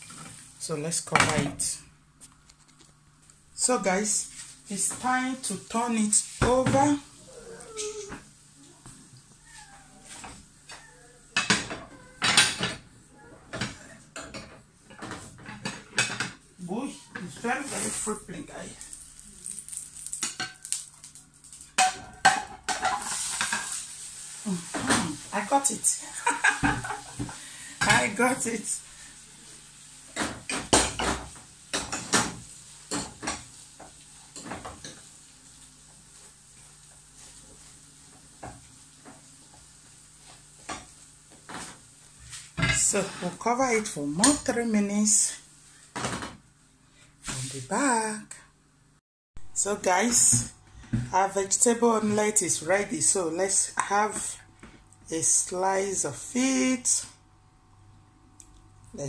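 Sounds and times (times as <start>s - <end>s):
wooden spatula scraping frying pan: 17.1s - 18.9s, 22.7s - 43.5s
plate and frying pan clattering: 21.8s - 23.8s.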